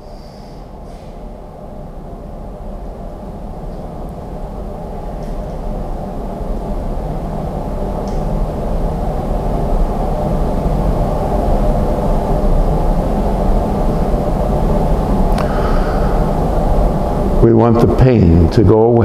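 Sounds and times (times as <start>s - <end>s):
low rumbling drone: 0.0s - 19.0s.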